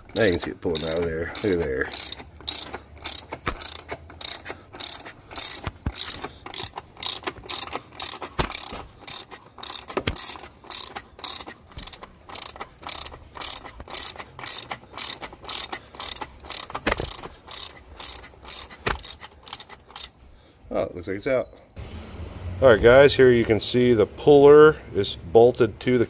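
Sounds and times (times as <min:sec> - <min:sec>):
ratchet wrench clicking: 0:00.0 - 0:20.2.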